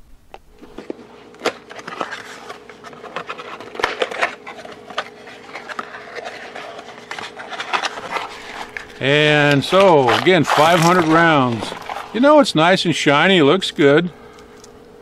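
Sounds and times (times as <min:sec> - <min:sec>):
cardboard scraping and rustling: 0:00.6 - 0:12.5.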